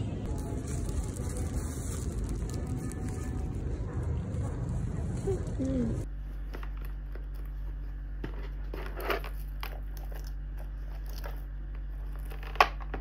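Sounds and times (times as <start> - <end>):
steady low hum: 0.0 - 13.0
rustling of bag and paper: 0.3 - 3.8.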